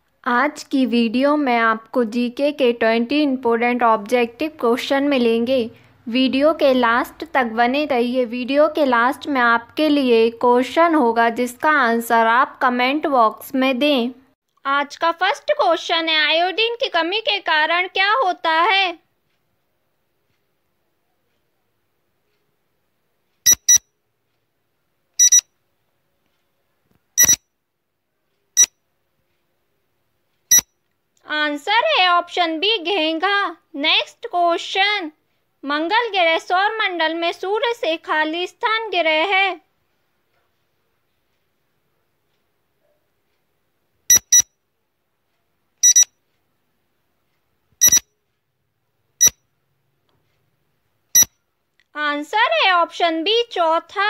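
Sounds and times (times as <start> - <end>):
short electronic beeps: 23.5 - 23.9, 25.2 - 25.5, 27.2 - 27.5, 30.5 - 30.7, 44.1 - 44.5, 45.8 - 46.2, 47.8 - 48.1, 49.2 - 49.4, 51.2 - 51.4.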